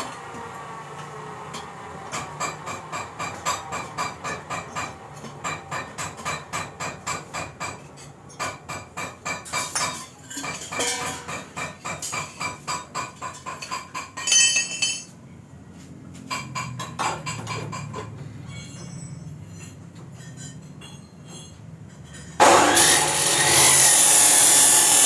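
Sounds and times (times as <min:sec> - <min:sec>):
ringing metal scrape: 0:18.3 - 0:25.0.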